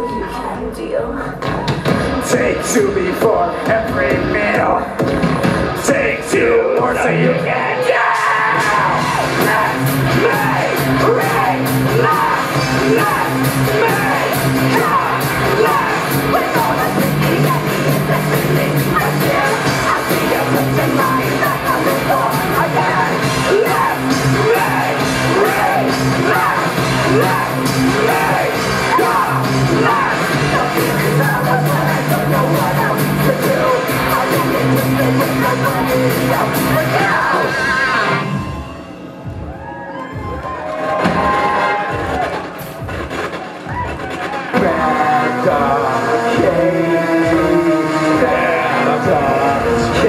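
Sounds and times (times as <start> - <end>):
drum beat: 0.0 - 7.3, 8.5 - 37.5, 38.5 - 50.0
bass: 0.0 - 42.8, 43.7 - 50.0
guitar: 1.5 - 42.8
person singing: 5.8 - 38.3, 44.5 - 50.0.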